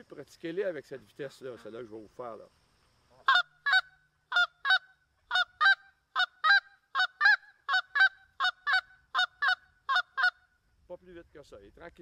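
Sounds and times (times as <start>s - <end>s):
goose call double clucks: 3.2s - 10.4s.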